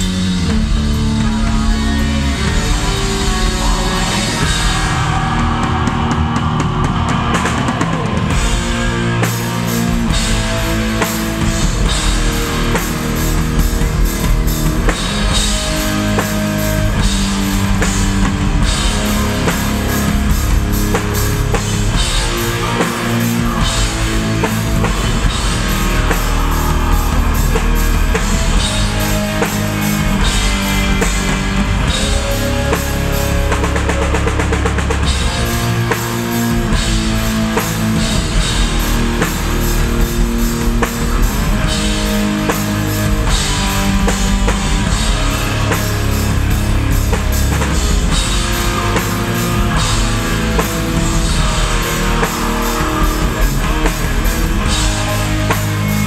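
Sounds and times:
bass guitar: 0:00.0 - 0:56.0
drum kit with cymbals: 0:00.0 - 0:56.0
electric guitars: 0:00.0 - 0:56.0.

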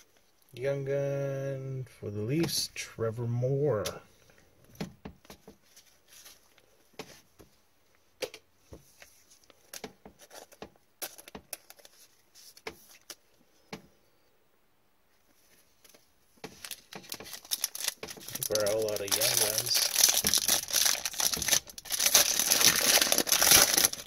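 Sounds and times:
cards flipping and shuffling: 0:04.7 - 0:07.3, 0:08.2 - 0:13.9, 0:15.3 - 0:24.0.

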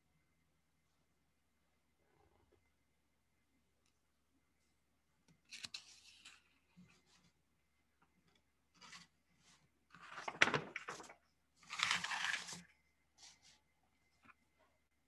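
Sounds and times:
rustling and crinkling: 0:08.0 - 0:14.5.

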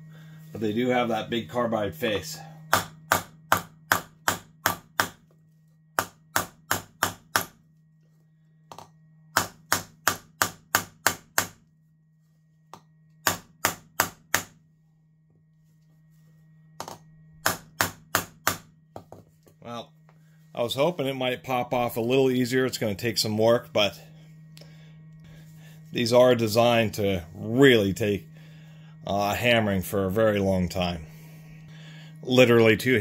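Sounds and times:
hammer tapping on metal: 0:02.7 - 0:05.2, 0:06.0 - 0:07.6, 0:12.7 - 0:14.5.

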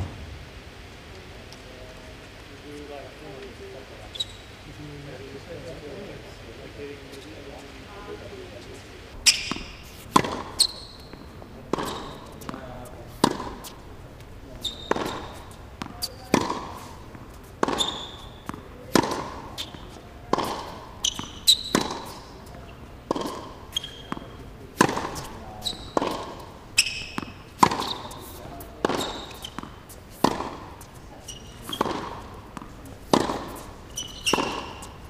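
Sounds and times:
ball bouncing on hard court: 0:00.0 - 0:00.6, 0:09.2 - 0:12.6, 0:14.6 - 0:16.7, 0:17.6 - 0:22.2, 0:23.1 - 0:28.2, 0:28.8 - 0:34.9
racket hitting tennis ball: 0:00.0 - 0:01.0, 0:09.2 - 0:13.8, 0:14.6 - 0:35.0
shoes squeaking on court: 0:04.0 - 0:04.6, 0:08.6 - 0:13.8, 0:14.4 - 0:35.0.

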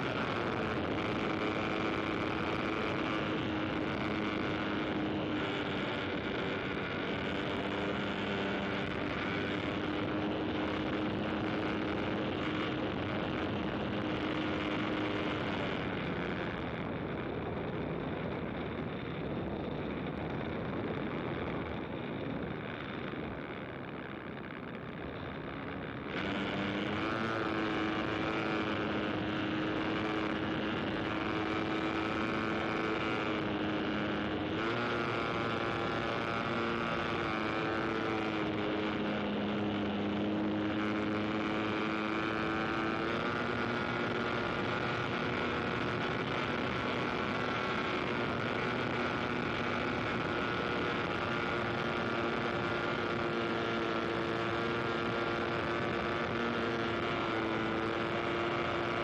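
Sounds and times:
engine drone: 0:00.0 - 0:59.0.

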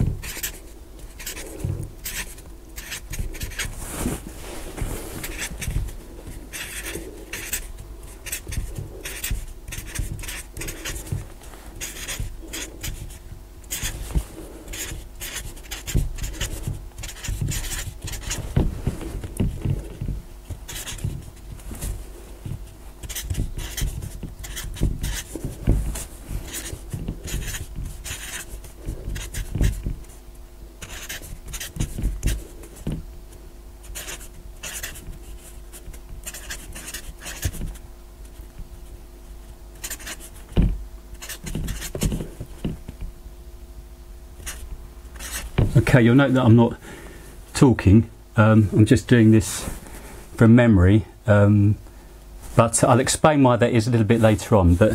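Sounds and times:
marker pen squeaking on a board: 0:00.0 - 0:03.7, 0:05.2 - 0:05.9, 0:06.5 - 0:11.2, 0:11.8 - 0:14.1, 0:14.7 - 0:18.6, 0:20.6 - 0:21.3, 0:23.0 - 0:25.5, 0:26.5 - 0:30.2, 0:30.8 - 0:33.0, 0:33.8 - 0:38.4, 0:39.8 - 0:42.3, 0:44.4 - 0:44.6, 0:45.2 - 0:45.7.

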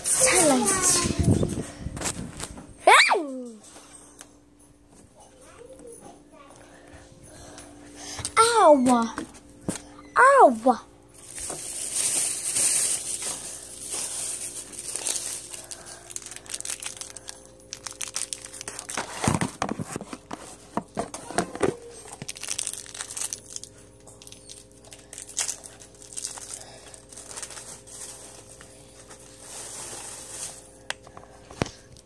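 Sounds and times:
crinkling handling noise: 0:00.0 - 0:02.8, 0:11.1 - 0:32.0.

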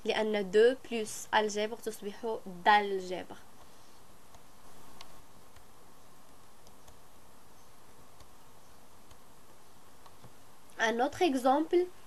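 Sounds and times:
low hiss: 0:00.0 - 0:12.0
faint clicks: 0:04.3 - 0:07.0.

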